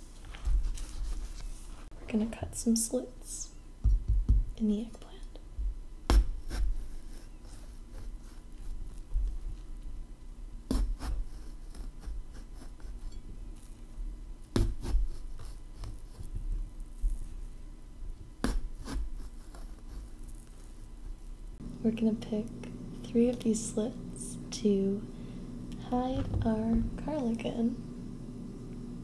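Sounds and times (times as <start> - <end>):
knife cutting eggplant: 6.1 - 9.1, 10.7 - 13.2, 14.5 - 16.4, 18.4 - 20.6.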